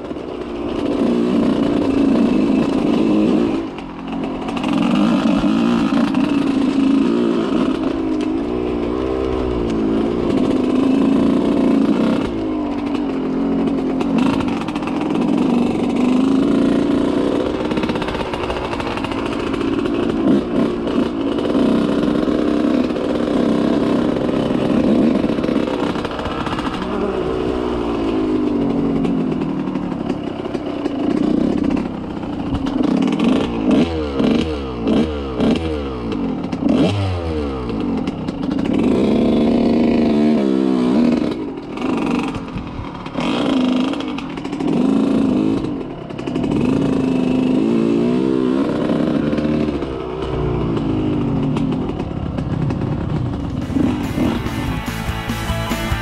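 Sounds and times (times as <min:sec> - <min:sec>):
off-road vehicle engine revving: 0:00.0 - 0:56.0
vehicle clattering on bumpy ground: 0:00.0 - 0:56.0.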